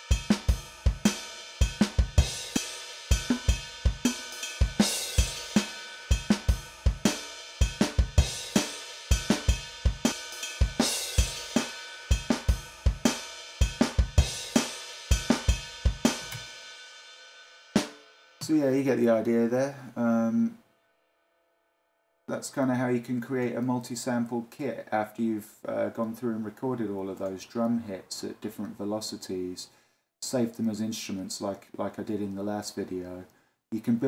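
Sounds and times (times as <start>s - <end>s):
snare drum: 0.0s - 16.6s
cymbal hits: 0.0s - 18.4s.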